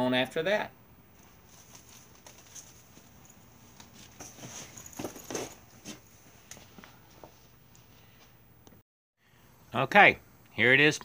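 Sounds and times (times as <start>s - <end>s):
shuffling footsteps: 1.1s - 8.4s.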